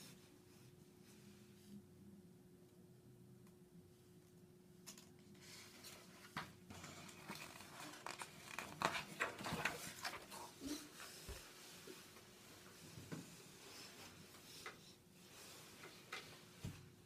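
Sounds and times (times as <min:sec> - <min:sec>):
paper pages rustling: 0:05.8 - 0:10.8.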